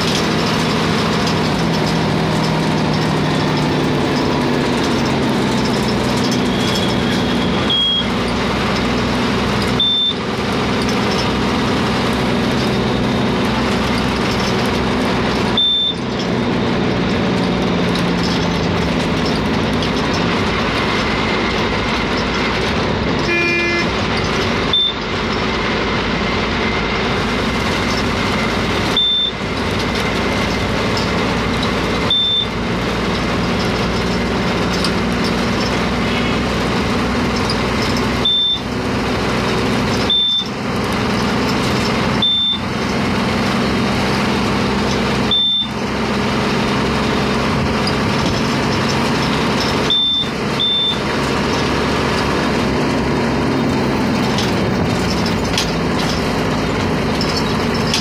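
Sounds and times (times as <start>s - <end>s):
vehicle engine and road noise: 0.0s - 58.0s
short high electronic beep: 6.4s - 8.1s, 9.8s - 10.2s, 15.6s - 16.0s, 29.0s - 29.4s, 32.1s - 32.5s, 38.2s - 38.7s, 42.2s - 42.6s, 45.3s - 45.8s, 49.9s - 51.0s.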